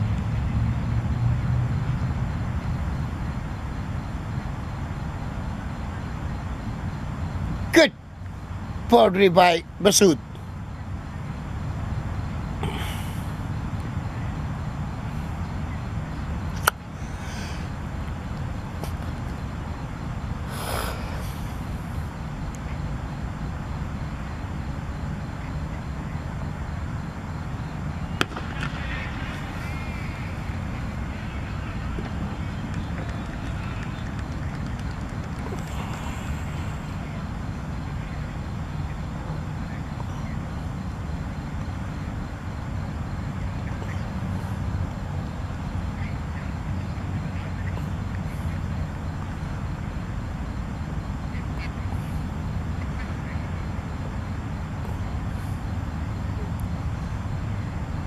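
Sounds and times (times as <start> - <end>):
low outdoor rumble: 0.0 - 58.0
hissing burst: 20.5 - 22.1.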